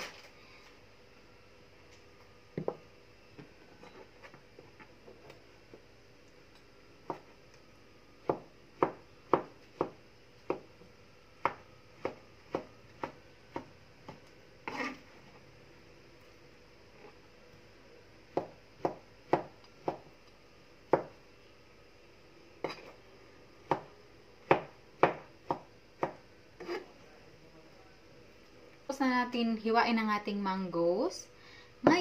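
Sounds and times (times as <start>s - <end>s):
knife slicing mango on cutting board: 14.6s - 15.0s, 24.5s - 26.9s.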